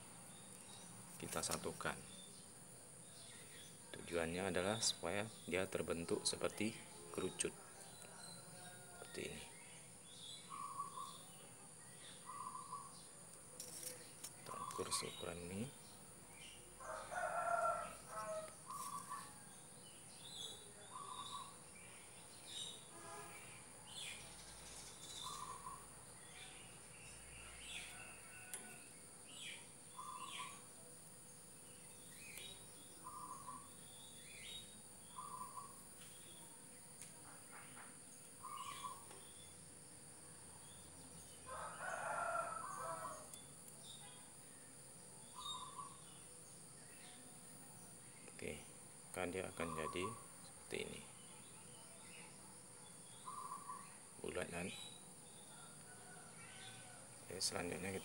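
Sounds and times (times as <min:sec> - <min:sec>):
rooster crowing: 0:07.1 - 0:09.4, 0:16.8 - 0:19.4, 0:27.4 - 0:29.0, 0:41.4 - 0:43.4, 0:55.4 - 0:57.3
high bird chirps: 0:16.4 - 0:19.4, 0:24.1 - 0:26.6
short bird calls: 0:53.2 - 0:54.0.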